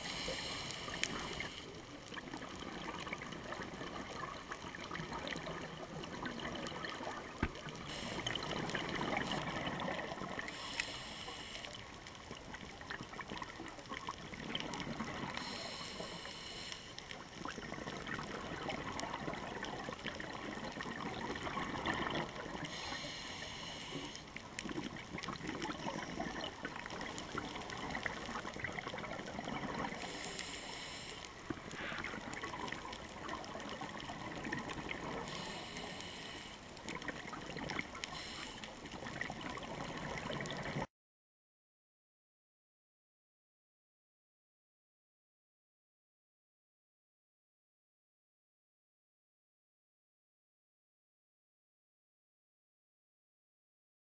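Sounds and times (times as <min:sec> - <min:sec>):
diver breathing through regulator: 0:00.0 - 0:01.8, 0:07.8 - 0:08.7, 0:10.4 - 0:11.9, 0:15.3 - 0:17.1, 0:22.6 - 0:24.3, 0:29.9 - 0:32.3, 0:35.2 - 0:36.8, 0:38.0 - 0:38.7.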